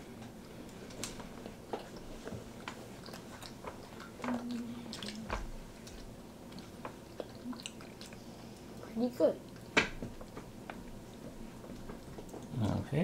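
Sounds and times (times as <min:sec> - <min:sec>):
people chewing chocolate bar: 0:00.1 - 0:13.0
wet mouth sounds: 0:02.9 - 0:08.8.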